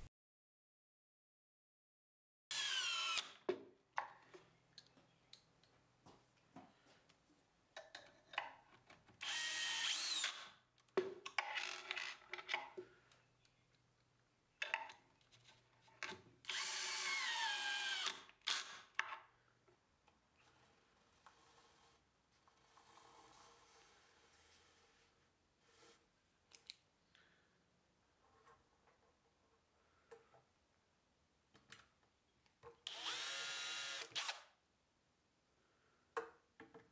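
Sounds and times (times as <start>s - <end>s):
cordless drill driving screws: 2.5s - 3.4s, 9.2s - 10.5s, 16.5s - 18.9s, 32.9s - 34.5s.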